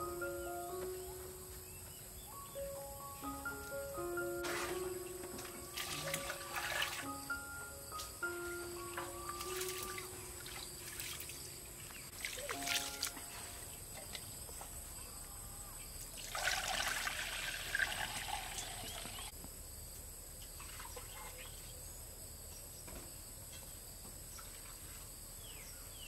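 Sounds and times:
water pouring into a pot: 16.2 - 19.2.

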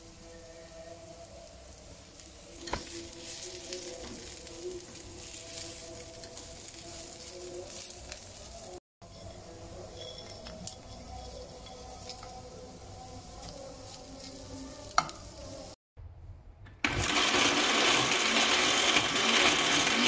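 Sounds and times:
onions and garlic sizzling in a pan: 0.0 - 15.8
wooden spatula scraping a pan: 2.5 - 15.7.

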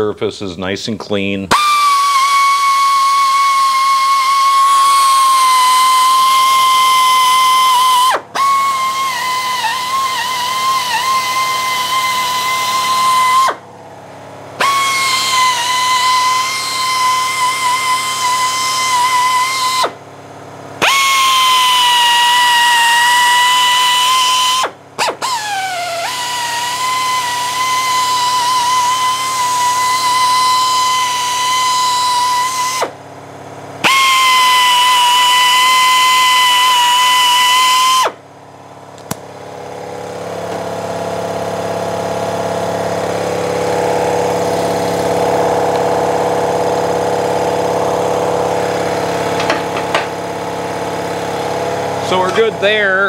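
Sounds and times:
die grinder wire brush whining: 1.5 - 13.6, 14.6 - 20.0, 20.8 - 32.9, 52.0 - 53.0.

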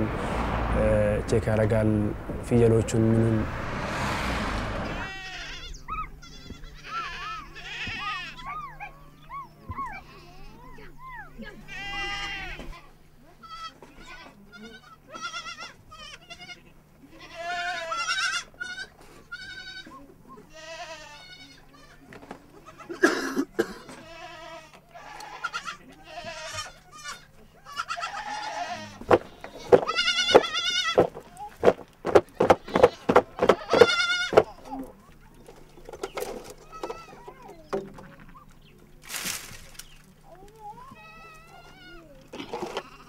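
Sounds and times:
goats bleating: 4.9 - 35.0, 40.5 - 43.0
sharp knocks or clatter: 29.0 - 34.5.

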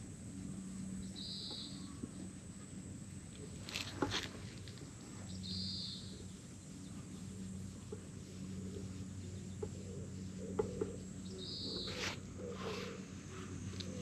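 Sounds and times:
scratchy rustle: 6.0 - 14.0.

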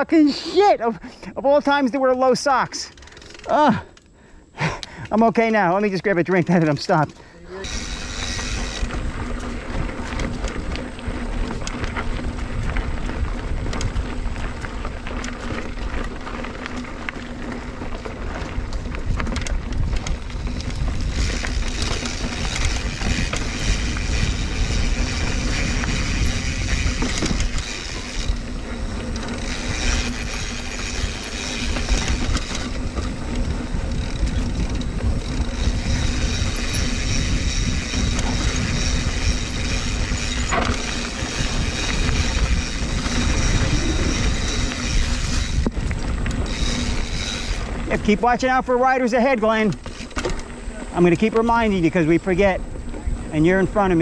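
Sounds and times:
bike rattling: 1.4 - 54.0
bike tyres rolling on dirt: 1.4 - 54.0
wind buffeting microphone: 7.6 - 48.7.

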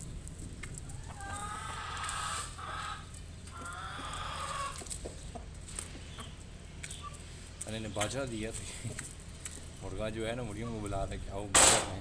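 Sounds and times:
rooster calling: 1.0 - 4.9.

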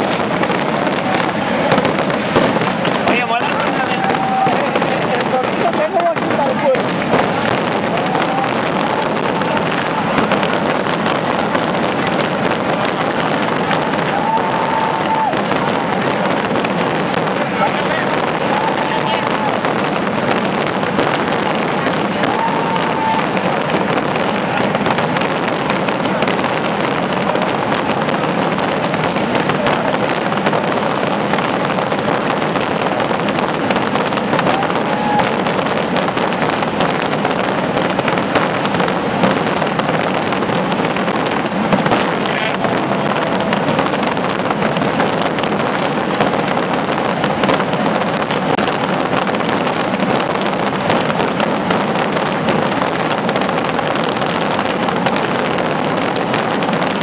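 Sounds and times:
rockets bursting with bangs and crackles: 0.0 - 57.0.

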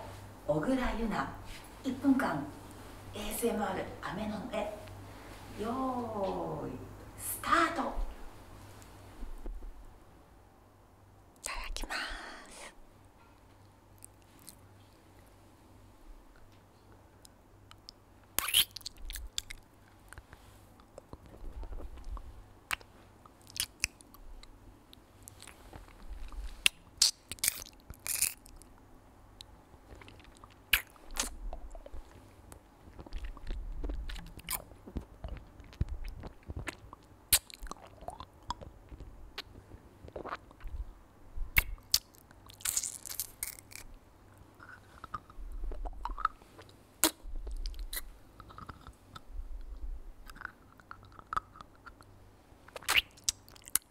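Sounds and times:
lollipop being licked and sucked: 17.8 - 20.2, 20.8 - 24.2, 25.2 - 28.6, 29.9 - 32.2, 32.9 - 38.7, 39.4 - 40.8, 41.6 - 43.9, 44.6 - 49.2, 52.7 - 53.9.

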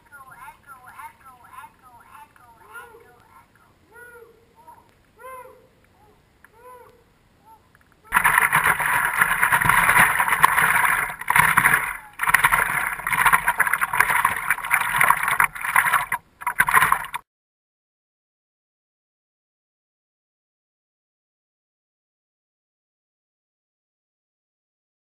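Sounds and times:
faint short calls: 1.6 - 8.3
water splashing against paddleboard: 8.1 - 17.2.

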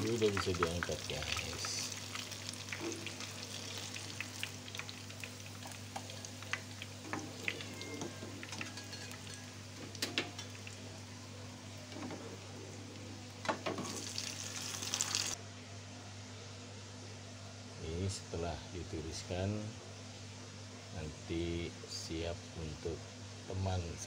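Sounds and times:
hot oil sizzling and crackling: 0.0 - 12.1, 13.4 - 15.4.

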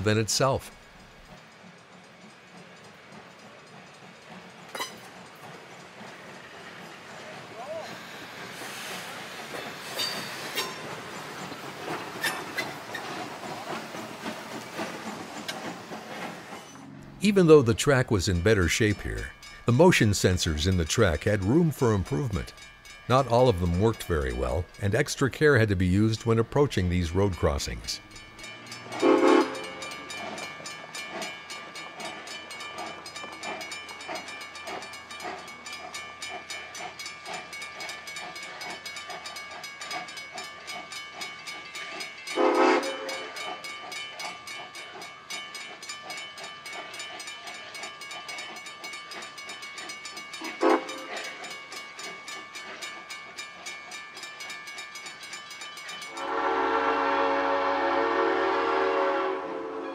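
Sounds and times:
crossing bell ringing: 16.7 - 59.9
steam locomotive whistle blasts: 29.0 - 29.8, 42.3 - 43.4, 50.6 - 51.2, 56.1 - 59.9.

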